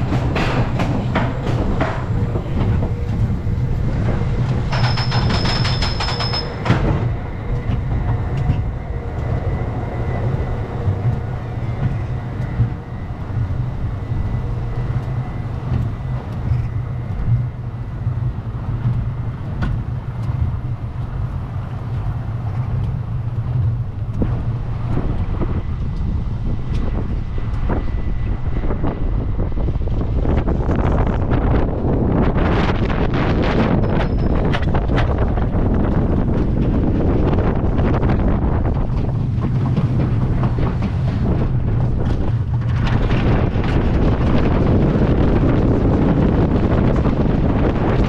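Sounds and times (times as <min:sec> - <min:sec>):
chain lift drone: 0:00.0 - 0:48.0
fast clatter of clicks with whine: 0:04.0 - 0:09.4.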